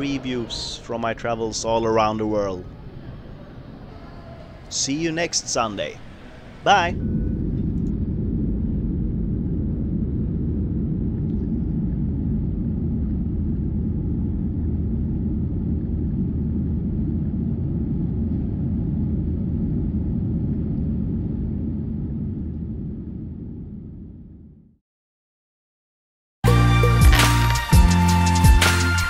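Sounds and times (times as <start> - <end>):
jet engines rumbling in cabin: 2.7 - 24.2.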